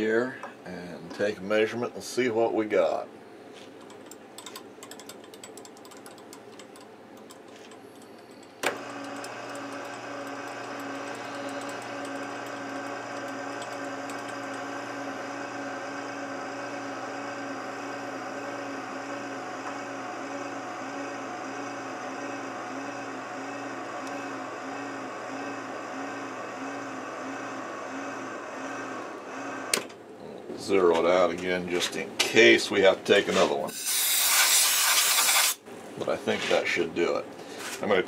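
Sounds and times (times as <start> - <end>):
milling machine motor humming: 7.5 - 29.9.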